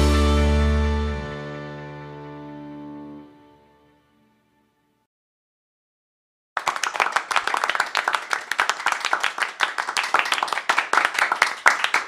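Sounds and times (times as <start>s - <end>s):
applause: 6.6s - 12.0s.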